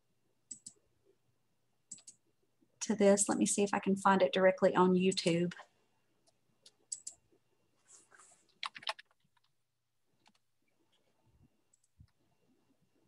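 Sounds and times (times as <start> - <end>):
faint keyboard typing and clicks: 0.4 - 0.8, 1.8 - 2.2, 5.0 - 5.6, 6.2 - 7.3, 8.4 - 9.6, 10.2 - 12.3.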